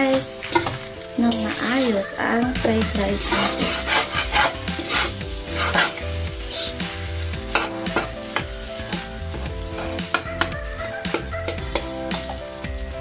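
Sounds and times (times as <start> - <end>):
light frying sizzle: 0.0 - 13.0
metal spatula scraping wok: 0.5 - 8.9.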